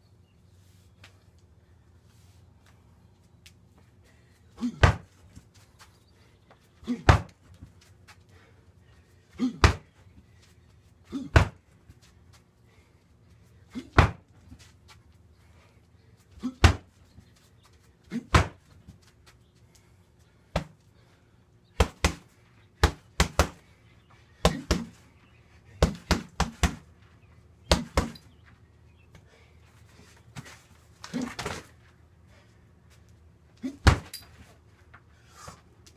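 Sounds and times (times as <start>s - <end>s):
kicks hitting heavy bag: 7.0s - 7.3s, 11.3s - 11.6s, 16.6s - 16.9s, 18.3s - 18.6s, 33.8s - 34.1s.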